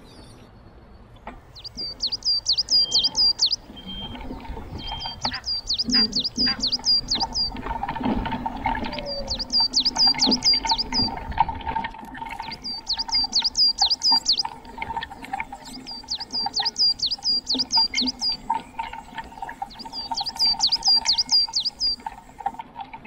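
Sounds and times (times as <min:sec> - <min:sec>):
songbird singing: 0:01.2 - 0:11.4, 0:12.2 - 0:22.6.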